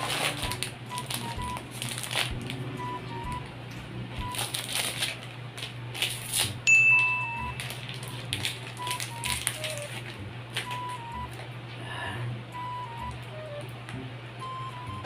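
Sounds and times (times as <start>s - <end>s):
high steady beep: 0.0s - 1.6s, 2.7s - 3.5s, 4.2s - 4.4s, 6.7s - 7.6s, 10.6s - 11.3s, 12.5s - 13.6s, 14.4s - 15.0s
plastic wrapper crinkling: 0.0s - 2.6s, 4.3s - 6.6s, 7.5s - 11.4s
quiet background music: 0.0s - 15.0s.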